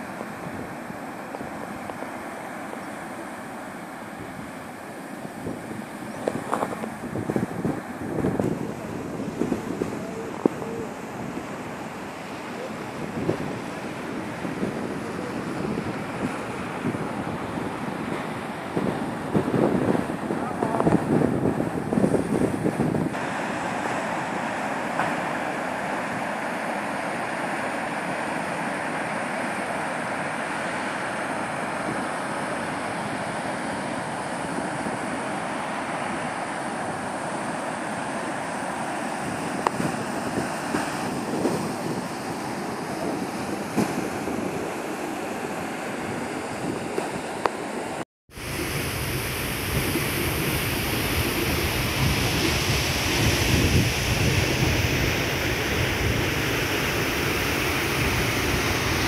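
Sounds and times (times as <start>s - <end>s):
deep steady rushing noise: 0.0s - 59.0s
water rushing over spillway: 0.0s - 59.0s
wind on microphone: 4.1s - 23.4s, 31.4s - 47.6s, 48.3s - 59.0s.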